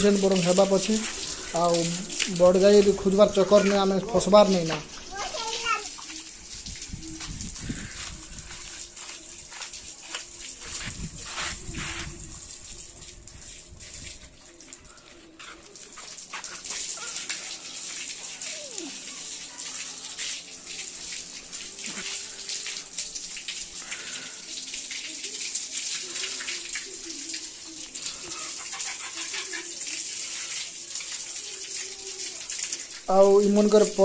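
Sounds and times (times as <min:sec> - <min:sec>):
hose water splashing on concrete: 0:00.0 - 0:34.0.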